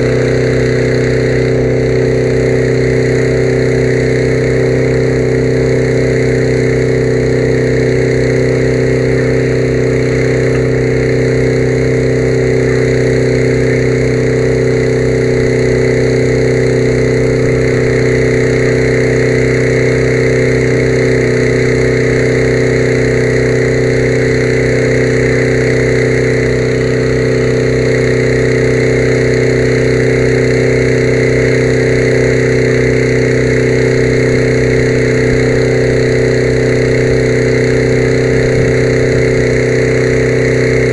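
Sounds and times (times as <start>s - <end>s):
small engine droning: 0.0s - 40.9s.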